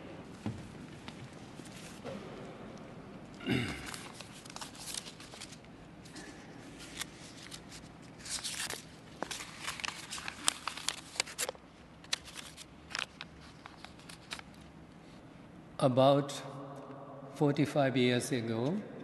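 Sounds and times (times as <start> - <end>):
papers rustling: 0.4 - 2.1, 3.8 - 15.2.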